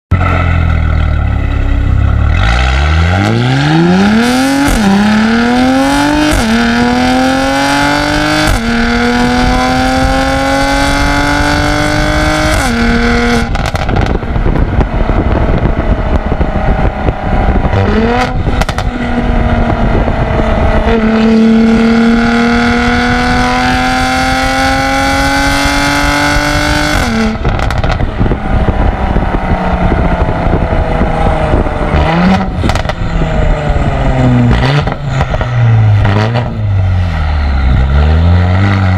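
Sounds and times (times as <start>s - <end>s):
car exhaust accelerating: 0.1s - 38.9s
road noise: 0.1s - 38.9s
exhaust cracks: 12.5s - 21.2s, 26.9s - 37.1s.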